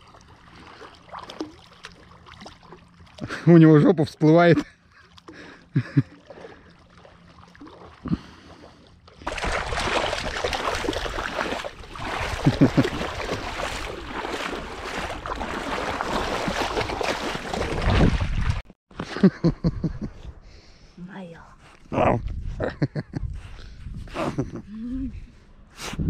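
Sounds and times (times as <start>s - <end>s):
dog splashing through water: 0.0s - 3.2s, 9.2s - 18.6s
feet wading through shallow water: 0.0s - 18.7s.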